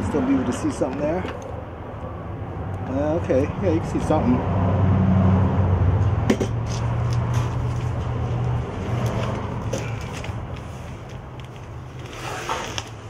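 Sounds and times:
cardboard scraping: 0:06.7 - 0:13.0.

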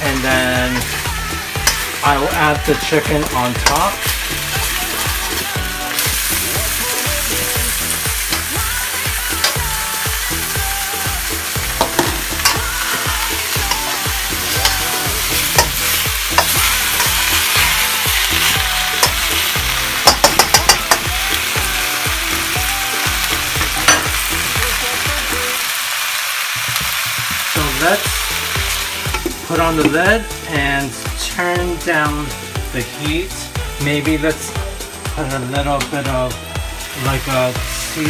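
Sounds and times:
food sizzling in a wok: 0:00.0 - 0:38.0
metal spatula scraping wok: 0:11.5 - 0:21.1.

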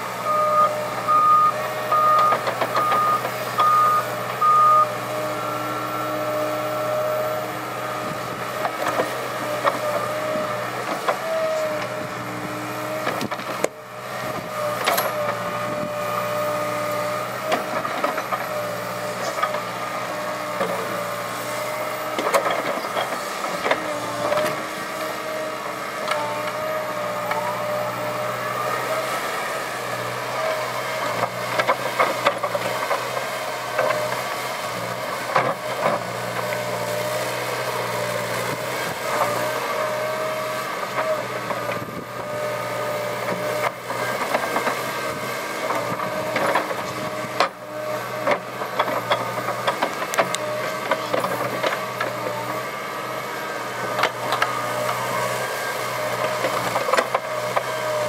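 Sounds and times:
diesel engine running under load: 0:00.0 - 0:58.0
travel alarm beeping: 0:01.1 - 0:04.9
hydraulic whine: 0:33.7 - 0:58.0.

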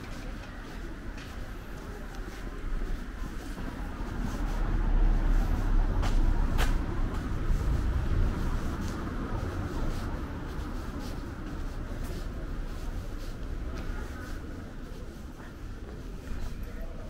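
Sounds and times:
motor vehicle passing: 0:03.8 - 0:13.4.

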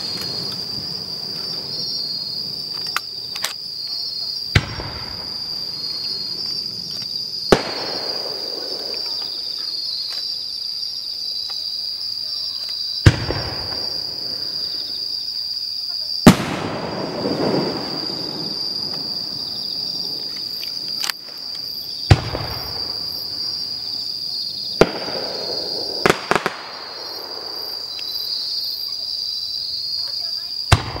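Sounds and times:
insects trilling: 0:00.0 - 0:31.0
firework shells bursting: 0:16.2 - 0:23.2, 0:24.7 - 0:28.2.

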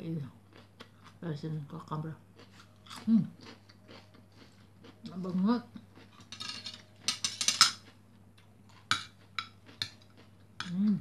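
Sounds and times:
cutlery scraping a ceramic plate: 0:06.2 - 0:07.8.

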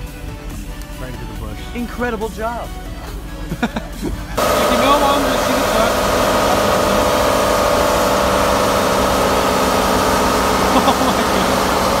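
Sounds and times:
truck engine revving: 0:00.0 - 0:12.0
spinning tyres screeching: 0:04.1 - 0:12.0.

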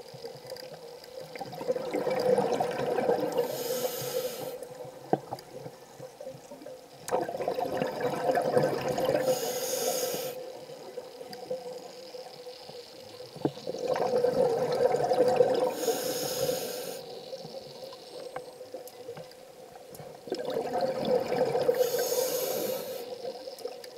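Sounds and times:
regulator inhale hiss: 0:03.3 - 0:04.7, 0:09.2 - 0:10.6, 0:15.7 - 0:17.4, 0:21.7 - 0:23.3.

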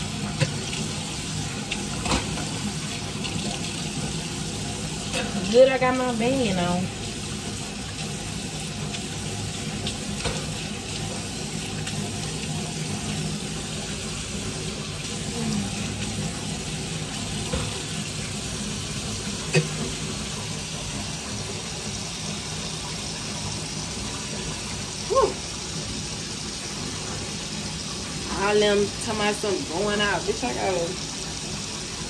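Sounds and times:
tap water running into sink: 0:00.0 - 0:32.0.

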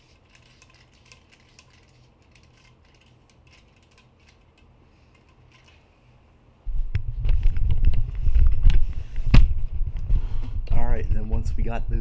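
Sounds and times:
hose fitting clicking and scraping: 0:00.0 - 0:05.8.

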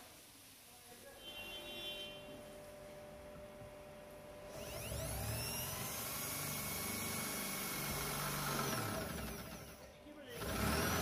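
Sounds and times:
electric drill boring metal: 0:04.5 - 0:11.0.

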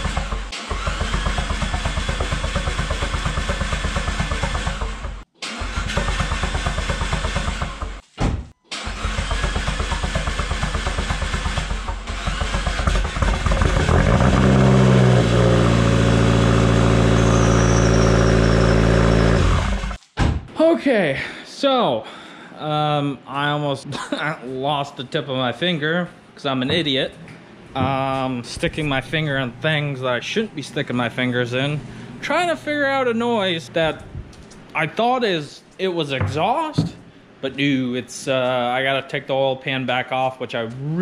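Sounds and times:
car engine running: 0:00.0 - 0:05.2, 0:09.1 - 0:20.0
car starter cranking: 0:00.0 - 0:08.0, 0:08.7 - 0:15.4.

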